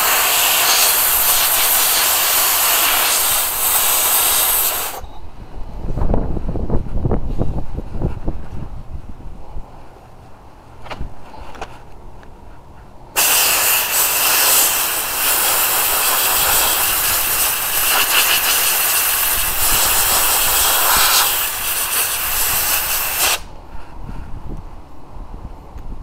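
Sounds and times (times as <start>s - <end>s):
abrasive blaster hissing: 0.0s - 5.0s, 13.2s - 23.5s.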